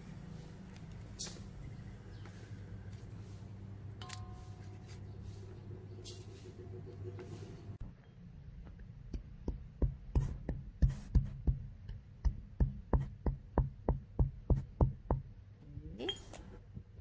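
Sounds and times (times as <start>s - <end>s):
stone pestle pounding in mortar: 9.2s - 15.3s.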